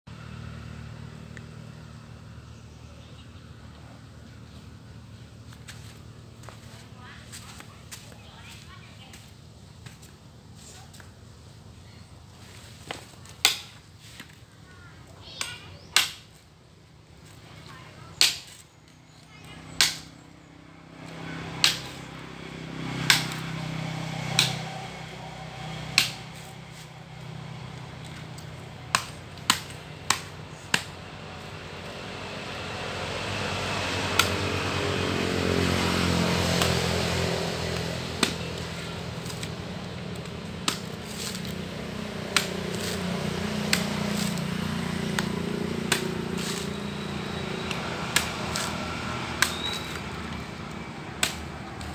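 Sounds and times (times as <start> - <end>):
coconuts striking the ground: 12.8 - 14.4, 15.2 - 16.4, 18.1 - 20.2, 20.9 - 51.9.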